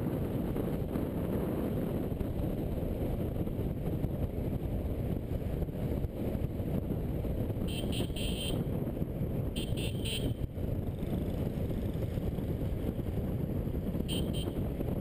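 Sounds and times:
road noise: 0.0s - 15.0s
wind rumble on microphone: 0.0s - 15.0s
motorcycle engine running: 9.4s - 15.0s.

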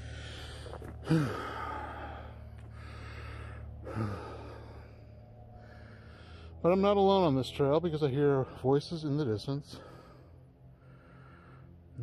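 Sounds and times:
man breathing hard: 0.0s - 6.6s, 9.7s - 12.0s.

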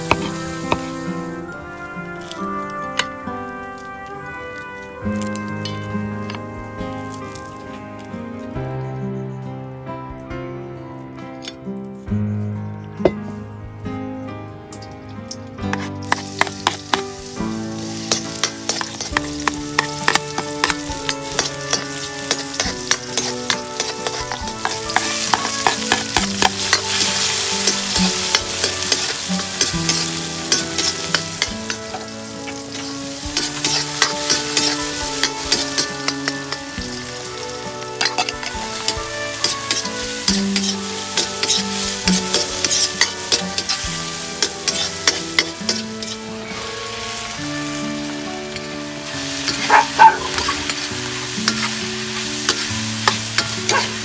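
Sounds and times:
spatula scraping a wok: 0.0s - 1.4s, 15.7s - 54.0s
food sizzling in hot oil: 0.0s - 8.1s, 15.6s - 54.0s.

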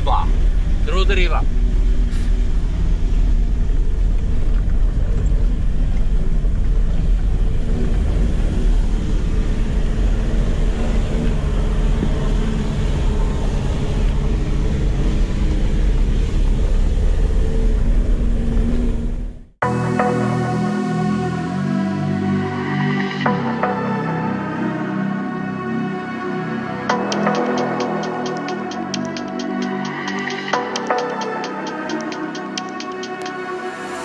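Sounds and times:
deep road rumble: 0.0s - 19.6s
vehicle engine drone: 0.0s - 22.6s.

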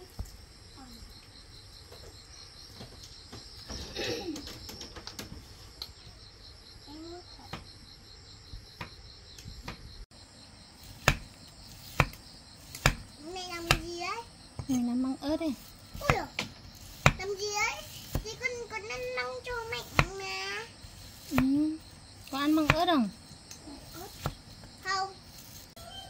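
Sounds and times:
insect trilling: 0.0s - 26.0s
sharp knocks: 11.0s - 11.3s, 11.9s - 14.0s.

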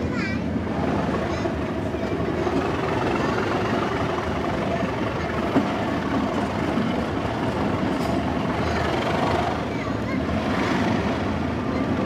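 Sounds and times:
diesel locomotive drone: 0.0s - 12.0s
wheel-on-rail noise: 0.0s - 12.0s.

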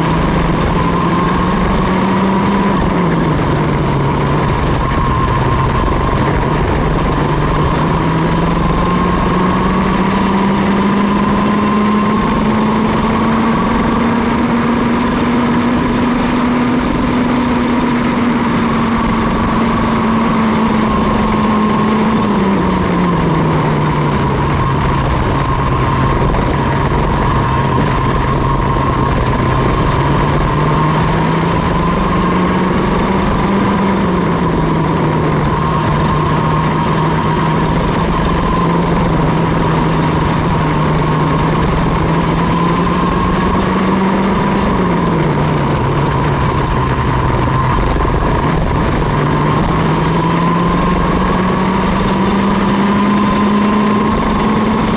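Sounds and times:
kart engine racing: 0.0s - 54.9s.

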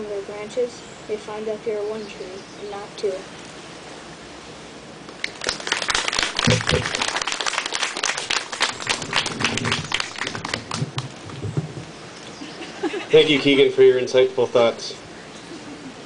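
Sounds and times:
small crowd clapping: 5.1s - 11.7s.

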